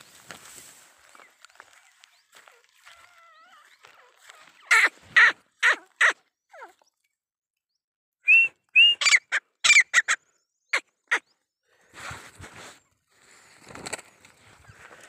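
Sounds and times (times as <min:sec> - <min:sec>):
quail calling: 0:01.1 - 0:06.8, 0:08.8 - 0:11.3.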